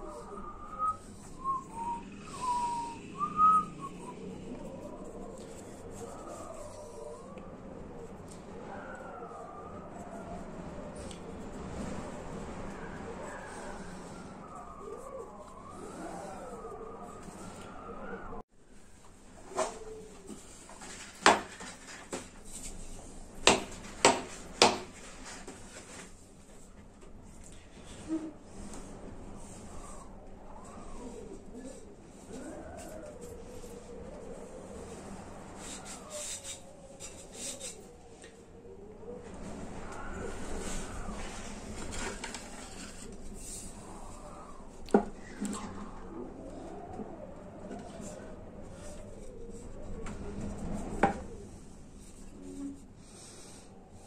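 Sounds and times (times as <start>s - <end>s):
person whistling: 0.2s - 4.1s.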